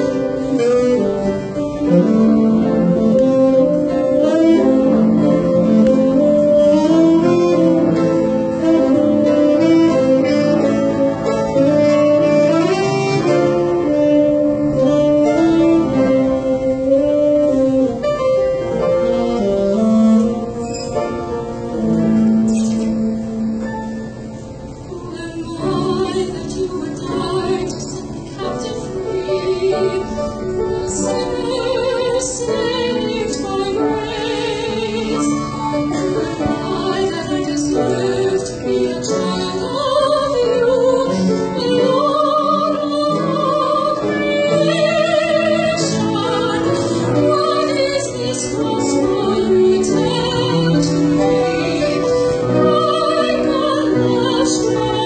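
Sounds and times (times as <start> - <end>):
piano: 0.0 - 55.0
saxophone: 0.0 - 55.0
violin: 0.0 - 55.0
woman singing: 24.9 - 55.0.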